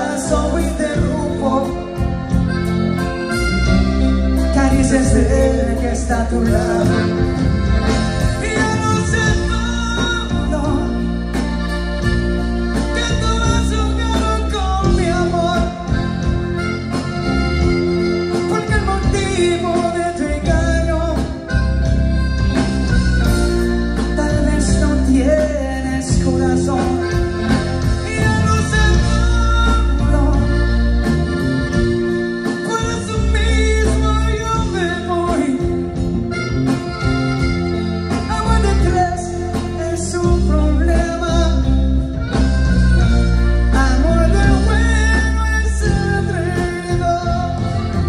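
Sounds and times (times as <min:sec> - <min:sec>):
live band through pa: 0:00.0 - 0:48.0
person singing: 0:04.4 - 0:07.6.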